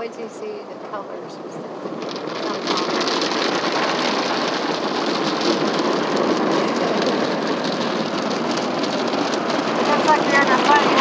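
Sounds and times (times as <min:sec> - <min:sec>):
water spraying on car: 0:00.0 - 0:11.0.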